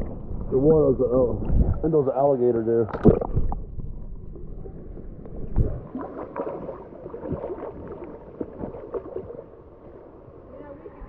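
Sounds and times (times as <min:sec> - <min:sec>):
water sloshing and gurgling: 0:00.0 - 0:11.0
small splashes and bubbling: 0:02.8 - 0:03.7, 0:04.3 - 0:10.1.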